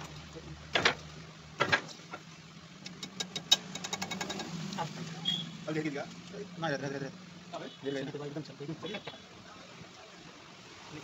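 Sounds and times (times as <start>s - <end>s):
small sharp metal clicks: 2.8s - 4.5s
metal knocking and clinking: 2.9s - 4.5s.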